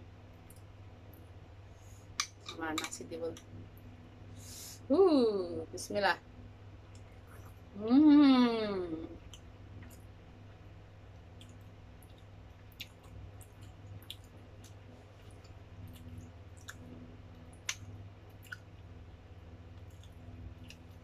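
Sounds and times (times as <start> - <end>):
low steady hum: 0.0 - 21.0
chewing and mouth clicks: 11.2 - 18.8, 19.7 - 21.0.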